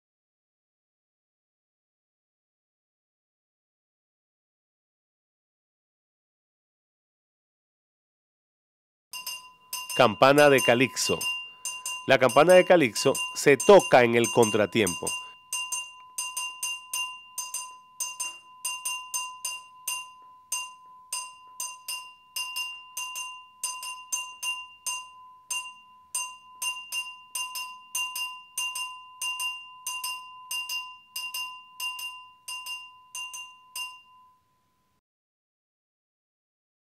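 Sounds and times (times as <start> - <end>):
metal bell struck rhythmically: 9.2 - 34.7.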